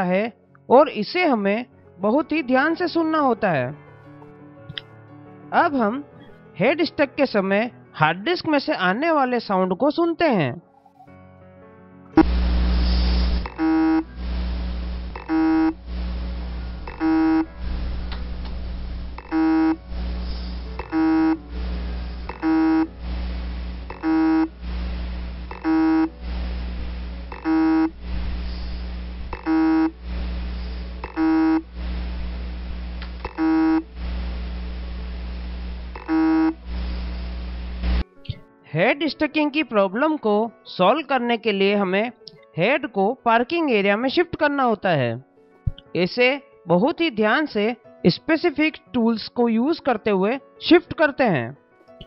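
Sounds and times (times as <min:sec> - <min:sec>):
low hum: 0:12.2 - 0:38.0
hard disk drive beeping: 0:13.4 - 0:14.2, 0:15.1 - 0:15.8, 0:16.9 - 0:17.5, 0:19.2 - 0:19.8, 0:20.8 - 0:21.5, 0:22.3 - 0:23.0, 0:23.9 - 0:24.6, 0:25.4 - 0:26.2, 0:27.3 - 0:28.0, 0:29.3 - 0:30.0, 0:31.0 - 0:31.7, 0:33.2 - 0:33.9, 0:36.0 - 0:36.6.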